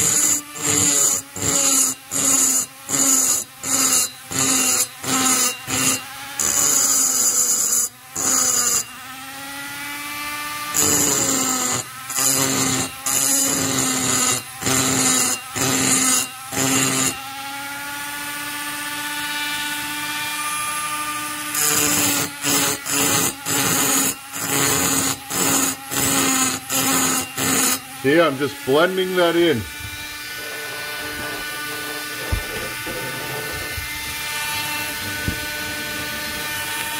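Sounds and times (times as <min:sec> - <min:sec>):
rotary tool motor whine: 0:00.0 - 0:36.9
burr scraping metal: 0:21.6 - 0:36.9.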